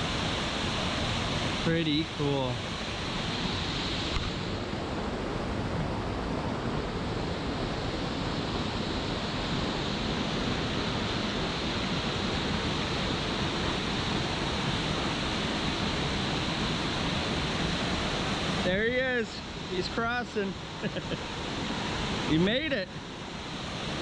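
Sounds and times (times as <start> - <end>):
waterfall roaring: 8.5 - 24.0.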